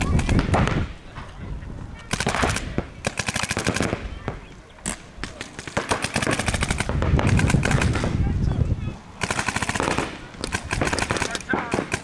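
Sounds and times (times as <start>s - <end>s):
paintball markers firing rapidly: 0.0s - 0.9s, 2.1s - 4.1s, 4.9s - 8.2s, 9.2s - 12.0s.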